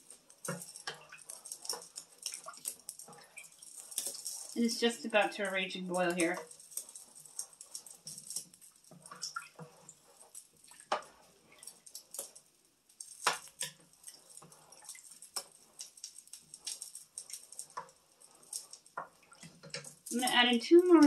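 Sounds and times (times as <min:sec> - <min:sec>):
water nearly boiling in pot: 0:00.0 - 0:21.0
wooden spoon stirring in pot: 0:00.0 - 0:21.0.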